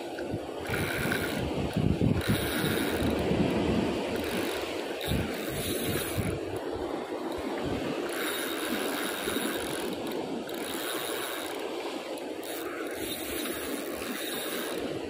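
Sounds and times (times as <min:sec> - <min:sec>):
wind on microphone: 0:00.0 - 0:15.0
fishing reel ratcheting: 0:00.5 - 0:15.0.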